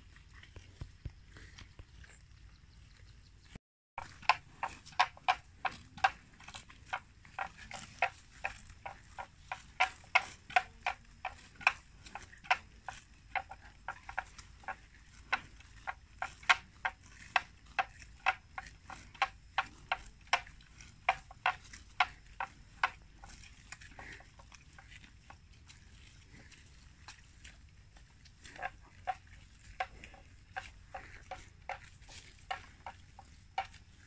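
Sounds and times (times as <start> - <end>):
buffalo tearing grass: 4.0 - 27.8, 28.4 - 34.0.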